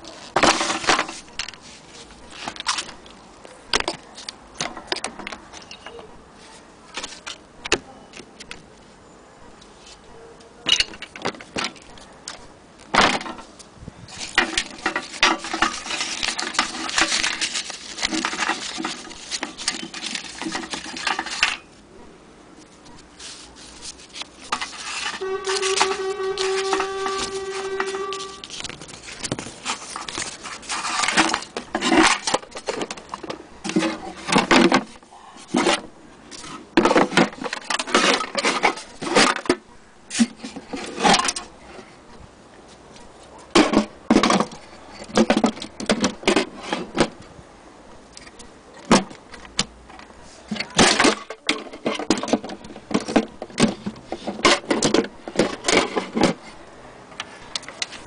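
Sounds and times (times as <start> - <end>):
objects clattering: 0.0 - 6.0, 10.6 - 21.8, 23.2 - 41.6, 43.4 - 47.3, 48.2 - 56.6.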